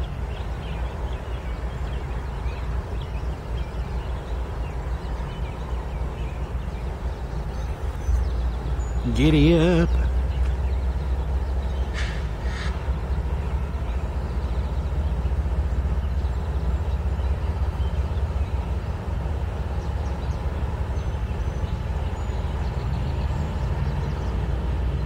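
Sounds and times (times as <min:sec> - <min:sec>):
locomotive engine rumble: 0:00.0 - 0:25.0.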